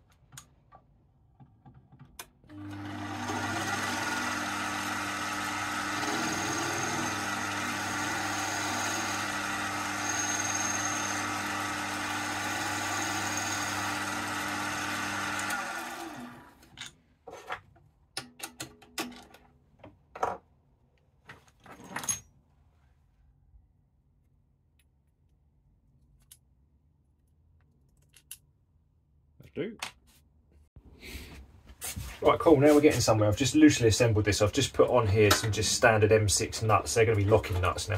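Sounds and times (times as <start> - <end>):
lathe motor hum and whine: 2.6 - 16.5.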